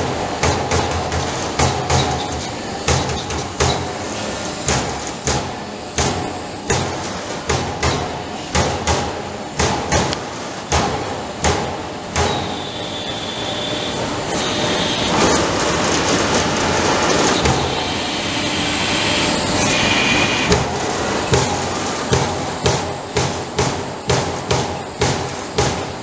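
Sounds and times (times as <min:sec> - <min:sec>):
punch press hitting sheet metal: 0:00.0 - 0:04.0, 0:04.6 - 0:19.6, 0:20.4 - 0:26.0
machine running: 0:10.3 - 0:26.0
steady high whine: 0:12.3 - 0:21.9.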